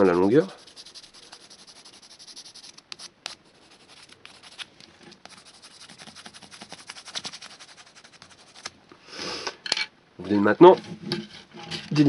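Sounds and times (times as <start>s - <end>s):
pencil scratching on paper: 0.0s - 8.7s.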